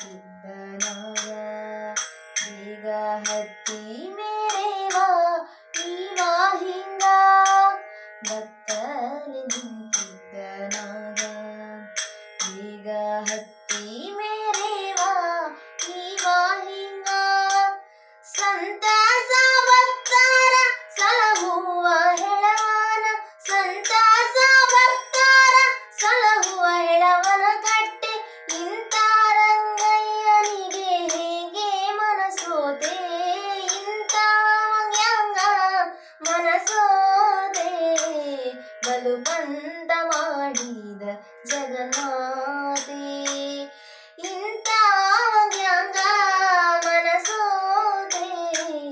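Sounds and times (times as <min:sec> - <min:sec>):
woman singing: 0:00.0 - 0:48.9
hand cymbals struck: 0:00.8 - 0:01.4, 0:02.0 - 0:02.6, 0:05.8 - 0:08.9, 0:09.5 - 0:12.6, 0:18.3 - 0:31.6, 0:32.3 - 0:35.6, 0:40.1 - 0:40.8.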